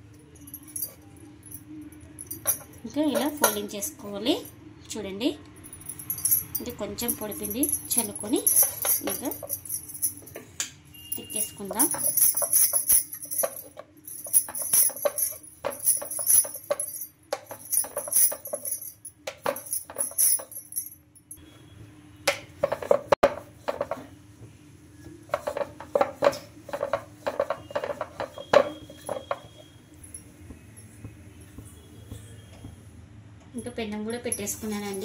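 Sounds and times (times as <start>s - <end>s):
metallic jingling: 0.3s - 3.8s, 5.6s - 10.4s, 11.0s - 21.4s
rolling pin on wooden board: 25.3s - 29.3s.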